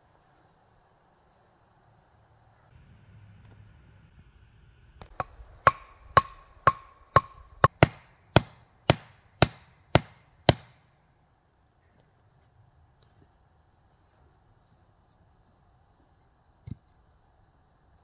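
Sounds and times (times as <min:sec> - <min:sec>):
wooden club pounding stake: 0:05.0 - 0:10.8.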